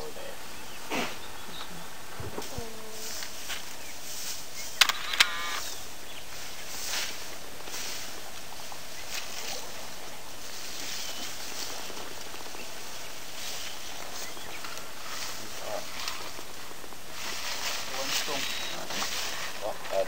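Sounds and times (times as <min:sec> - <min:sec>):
steady hiss: 0:00.0 - 0:20.0
rustling and cracking branches: 0:00.9 - 0:20.0.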